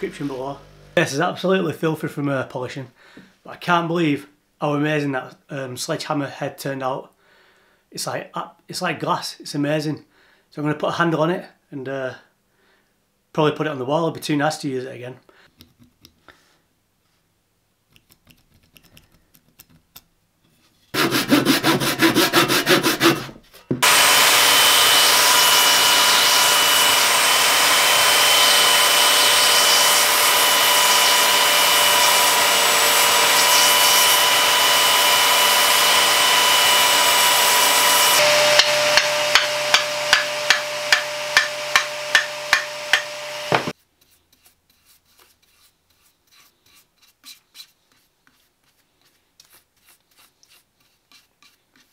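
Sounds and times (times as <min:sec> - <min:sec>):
power tool cutting wood: 0:00.0 - 0:01.0, 0:21.0 - 0:43.8.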